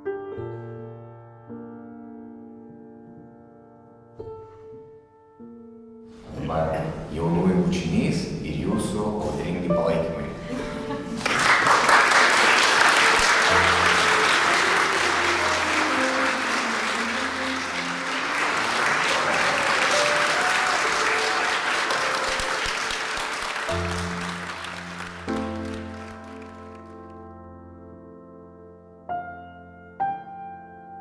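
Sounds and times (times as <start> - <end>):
guests applauding: 11.1 - 27.2.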